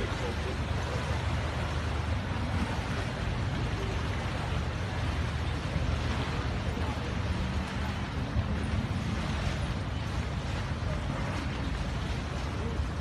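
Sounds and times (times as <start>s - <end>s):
ferry engine rumble: 0.0s - 13.0s
wind and water hiss: 0.0s - 13.0s.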